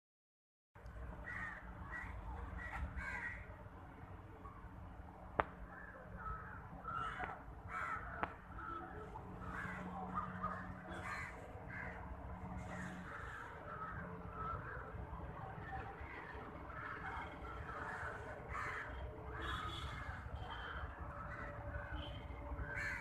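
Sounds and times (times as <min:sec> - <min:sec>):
crows cawing: 0:01.2 - 0:03.5, 0:05.8 - 0:15.0, 0:16.0 - 0:23.0.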